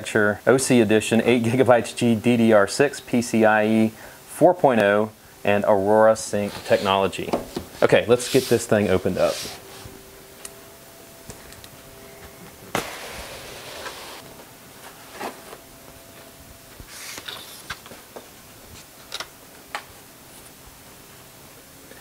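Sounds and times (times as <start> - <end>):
cardboard box sliding rustle: 6.4 - 7.1, 12.8 - 15.6.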